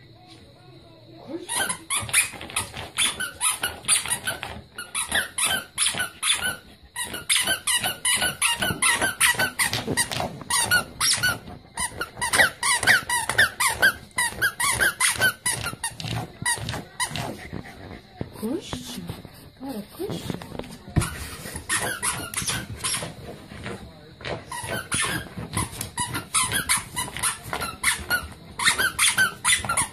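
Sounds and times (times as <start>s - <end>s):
squeaky toy squeaking: 1.5s - 17.2s, 21.7s - 23.1s, 24.5s - 29.9s.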